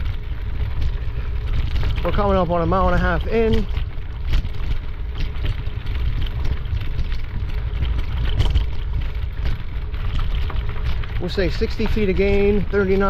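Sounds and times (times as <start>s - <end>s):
footfalls on rocky dirt trail: 0.0s - 13.0s.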